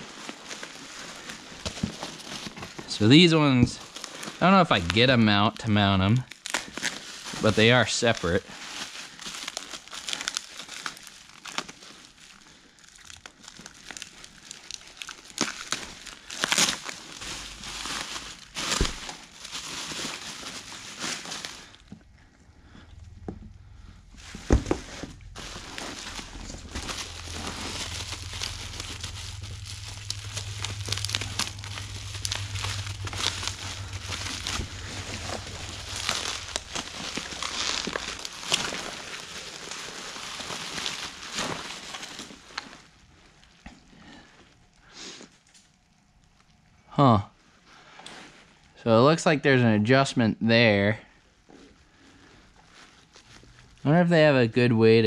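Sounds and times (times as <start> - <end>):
packing peanuts rustling: 0.0 - 22.0, 24.2 - 42.8
bubble wrap crinkling: 0.0 - 46.5, 51.5 - 54.1
low steady hum: 0.0 - 55.0.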